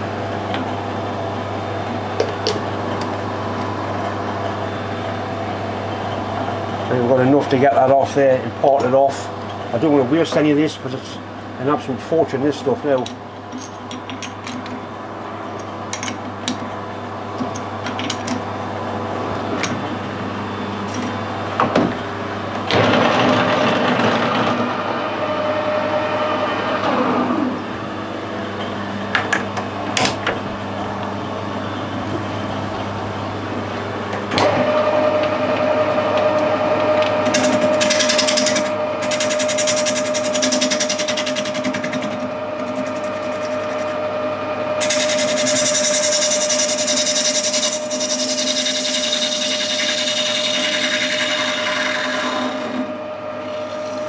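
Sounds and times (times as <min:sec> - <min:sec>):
metal lathe humming: 0:30.7 - 0:54.0.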